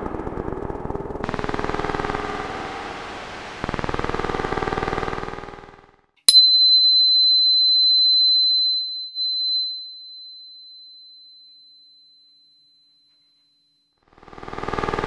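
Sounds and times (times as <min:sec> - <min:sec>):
high pure ringing tone: 0:06.2 - 0:15.0.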